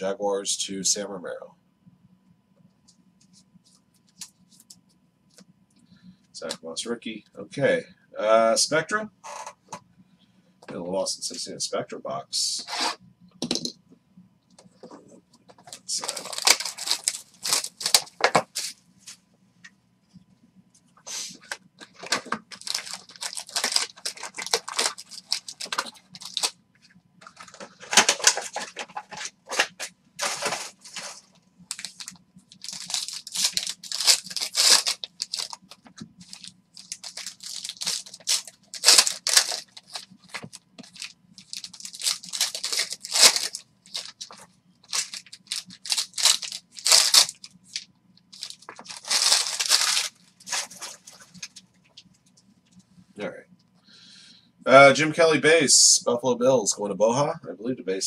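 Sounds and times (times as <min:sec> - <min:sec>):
foil wrappers tearing and crinkling: 0:15.7 - 0:18.7, 0:21.8 - 0:26.6, 0:27.2 - 0:51.5.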